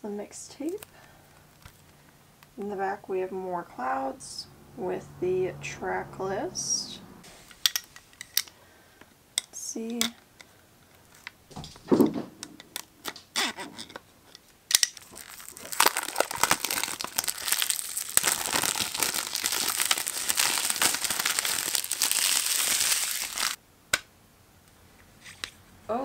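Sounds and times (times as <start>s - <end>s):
cellophane crackling: 14.7s - 23.6s.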